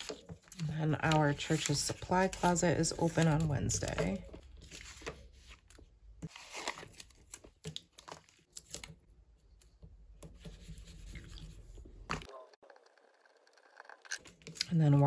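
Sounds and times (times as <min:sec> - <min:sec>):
paper rustling and crinkling: 0:00.0 - 0:09.0.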